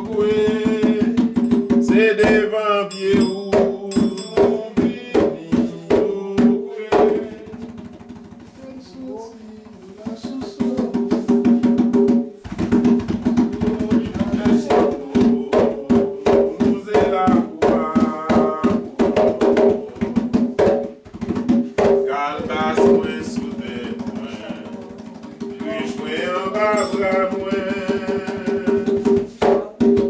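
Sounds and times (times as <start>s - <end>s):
voices singing: 0.0s - 7.7s, 22.0s - 29.1s
fast ceremonial drumming: 0.0s - 30.0s.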